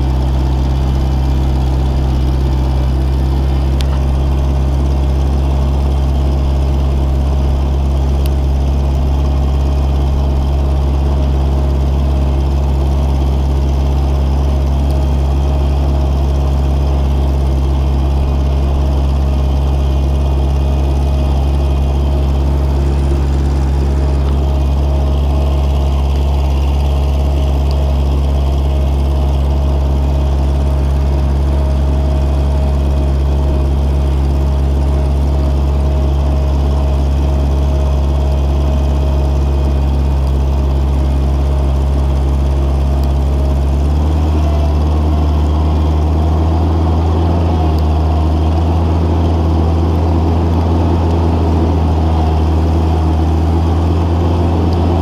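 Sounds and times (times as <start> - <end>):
loader engine running: 0.0 - 55.0.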